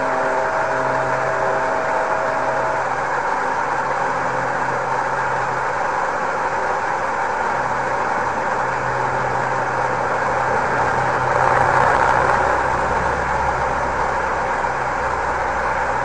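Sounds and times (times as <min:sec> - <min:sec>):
radio static hiss: 0:00.0 - 0:05.5
low hum: 0:00.0 - 0:16.0.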